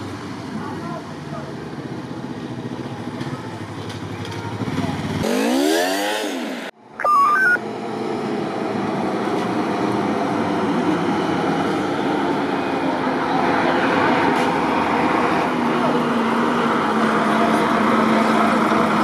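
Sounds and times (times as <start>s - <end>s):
road noise: 0.0s - 19.0s
motorcycle engine revving: 4.0s - 6.8s
electronic beep of stepped tones: 7.0s - 7.6s.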